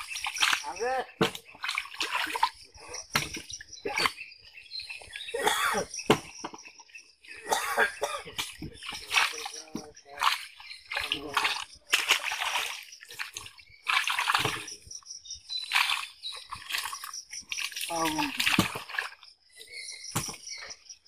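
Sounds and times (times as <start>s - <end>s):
water splashing from thrashing fish: 0.0s - 4.3s, 8.2s - 19.4s.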